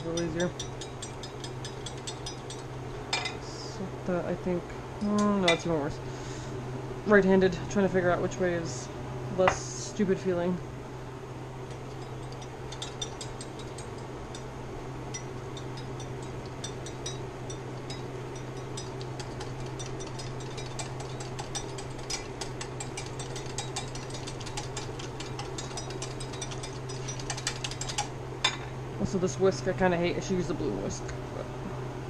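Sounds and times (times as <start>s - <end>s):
steady low hum: 0.0s - 32.0s
wire whisk clicking against bowl: 15.1s - 28.1s.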